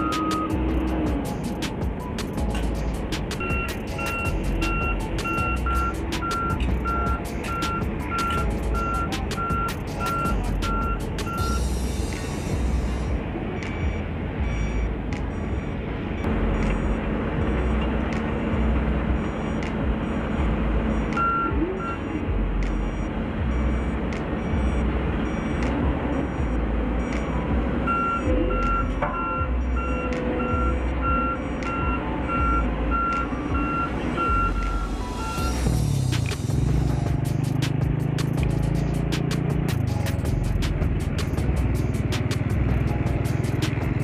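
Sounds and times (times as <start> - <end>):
reversing alarms beeping: 0.0 - 1.6, 3.4 - 36.0
diesel engines rumbling: 0.0 - 44.0
loud reversing alarm beeping: 3.4 - 35.8.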